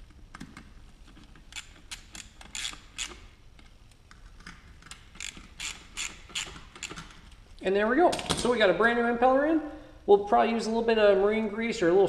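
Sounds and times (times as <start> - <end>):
socket ratchet clicking: 1.5 - 3.3, 4.4 - 7.2.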